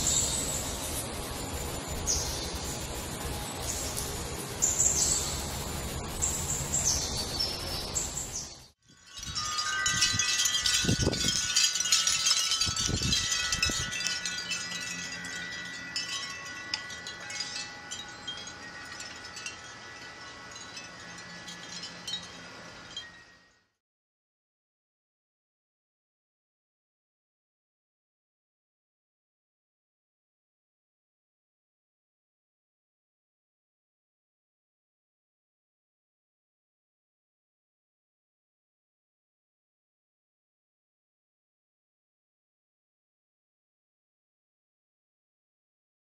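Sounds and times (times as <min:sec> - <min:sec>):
wind chimes ringing: 0:00.0 - 0:23.8
wind rumbling on microphone: 0:09.0 - 0:16.2.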